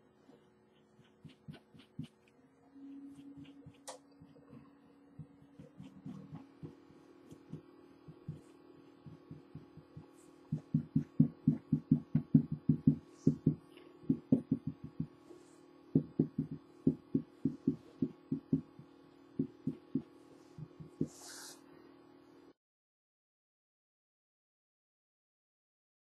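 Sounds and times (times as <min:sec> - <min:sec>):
low hum: 0:00.0 - 0:22.6
paint pen dabbing soft thumps: 0:01.0 - 0:02.2, 0:05.2 - 0:15.4, 0:16.0 - 0:21.3.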